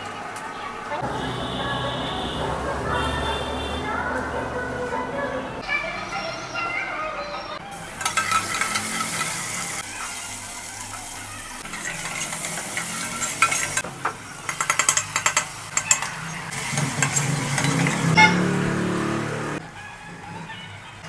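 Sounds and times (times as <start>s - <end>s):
onions sizzling in a pan: 7.6s - 18.1s
metal ladle stirring and scraping: 7.7s - 13.8s, 14.4s - 18.4s
ladle clinking against pan: 8.0s - 9.6s, 11.7s - 13.8s, 14.5s - 16.2s.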